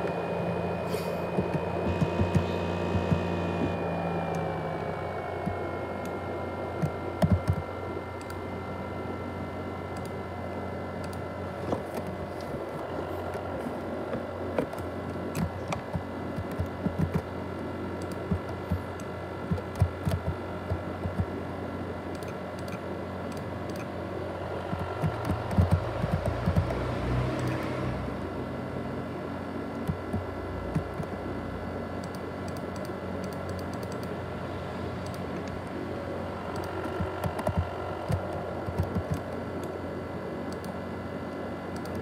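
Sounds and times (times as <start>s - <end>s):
laptop fan whining: 0.0s - 42.0s
sharp clicks: 32.0s - 34.1s, 36.5s - 39.7s.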